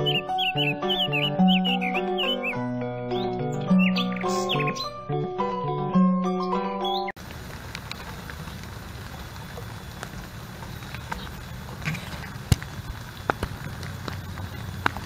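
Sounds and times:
sharp drips: 7.2 - 15.0
steady rainfall: 7.2 - 15.0.

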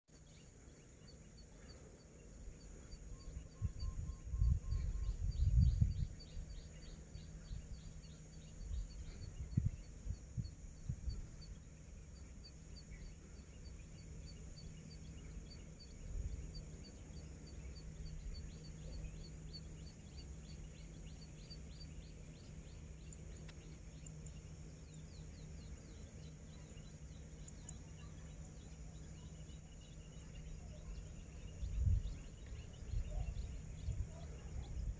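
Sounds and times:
wind buffeting microphone: 3.2 - 11.6, 31.4 - 34.9.

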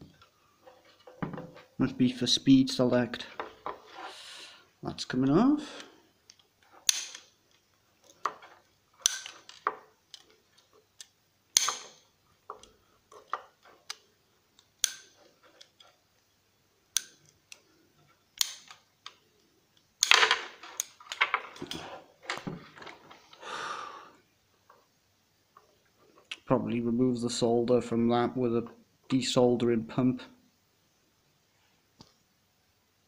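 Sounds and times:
clattering and rustling: 0.1 - 1.8, 20.1 - 23.4.

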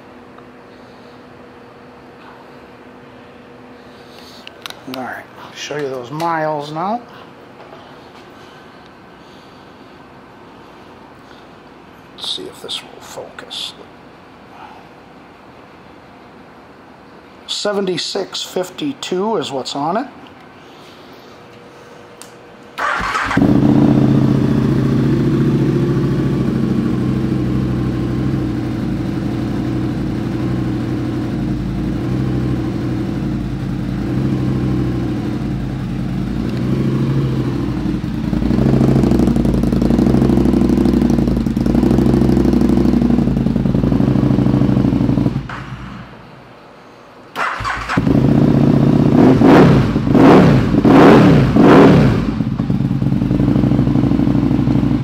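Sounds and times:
motorcycle engine idling: 22.8 - 45.5, 52.2 - 55.0
motorcycle throttle blips: 22.8 - 45.8.

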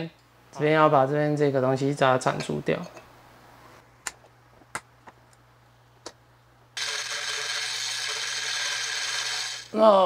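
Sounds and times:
rotary tool grinding metal: 6.8 - 9.7.

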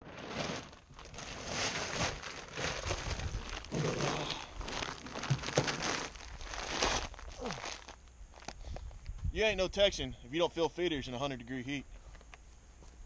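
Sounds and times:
feed sack crinkling: 0.0 - 8.8.

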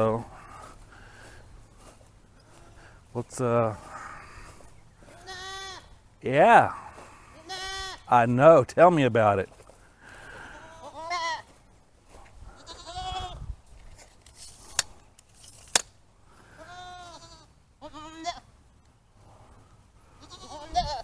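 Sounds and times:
goats bleating: 2.4 - 3.0, 3.6 - 6.0, 6.6 - 8.1, 10.0 - 11.5, 12.5 - 13.4, 16.3 - 18.5, 20.1 - 21.0
sharp clicks: 14.3 - 16.0.

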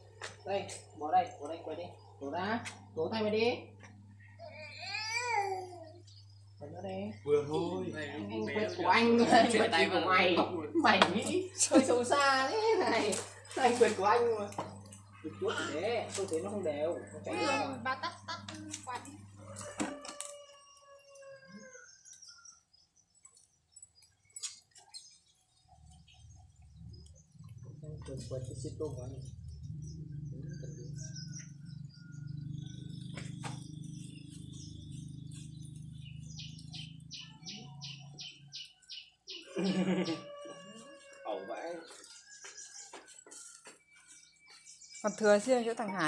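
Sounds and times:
falling animal call: 39.4 - 41.2.

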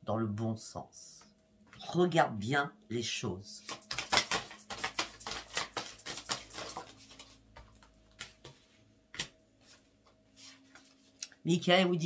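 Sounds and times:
cards being shuffled: 3.6 - 8.6.

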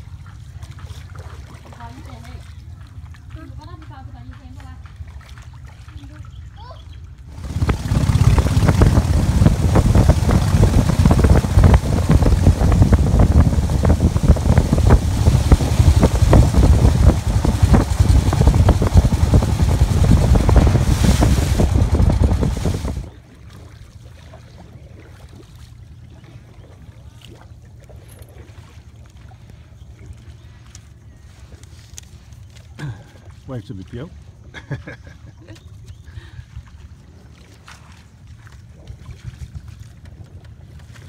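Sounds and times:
wind buffeting microphone: 7.3 - 23.2.

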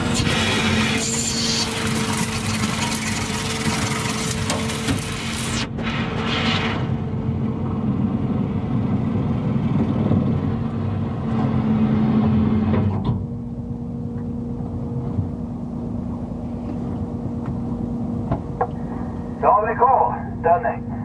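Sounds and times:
boat engine humming: 0.0 - 6.2, 6.9 - 21.0.

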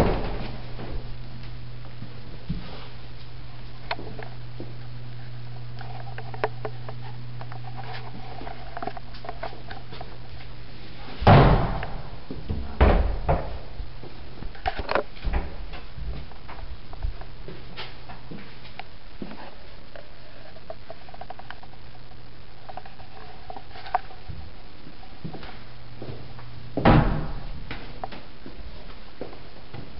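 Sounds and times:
wooden door banging shut: 0.0 - 0.6, 11.2 - 13.7, 26.8 - 27.4
steady low hum: 0.0 - 29.9.

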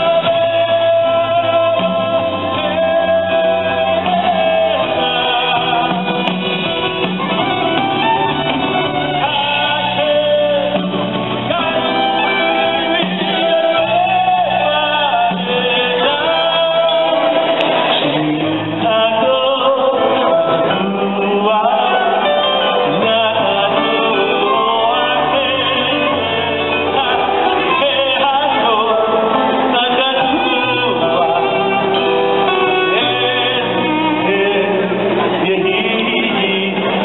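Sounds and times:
band playing: 0.0 - 37.0
man singing live: 0.0 - 37.0.

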